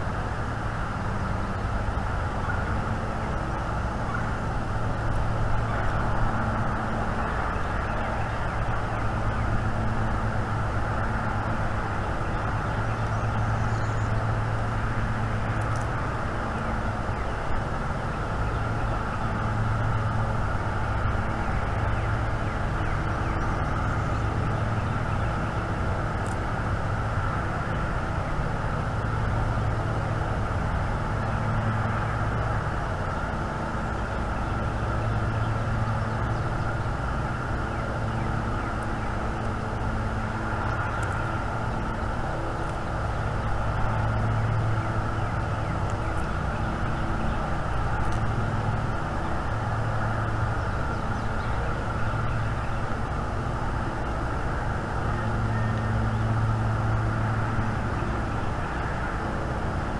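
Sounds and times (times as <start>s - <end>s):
low rumble and hum: 0.0s - 59.9s.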